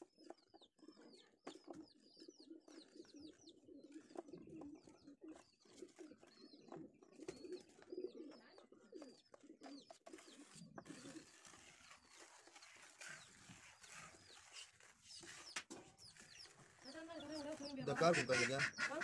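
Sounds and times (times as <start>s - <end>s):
pigeons cooing: 0.0s - 19.0s
small birds chirping: 0.0s - 19.0s
scraper hissing over glass: 10.1s - 17.8s.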